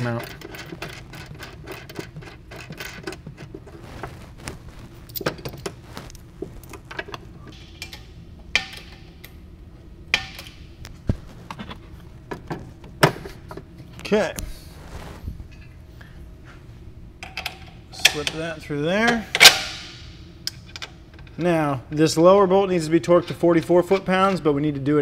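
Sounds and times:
metal bolts clinking and knocking: 0.0 - 3.6.

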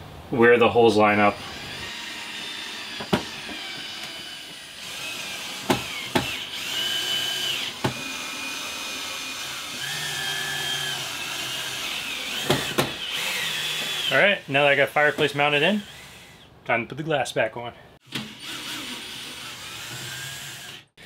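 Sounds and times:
cordless drill motor whining: 1.4 - 16.5, 18.0 - 21.0
sharp knocks: 5.7 - 6.4.

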